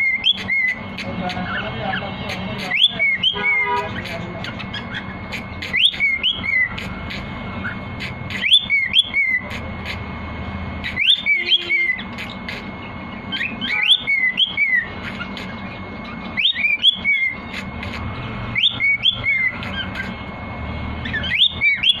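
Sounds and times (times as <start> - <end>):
cockatiel whistling a tune: 2.6 - 9.6, 10.8 - 12.3, 13.3 - 17.6, 18.6 - 20.1, 21.0 - 22.0.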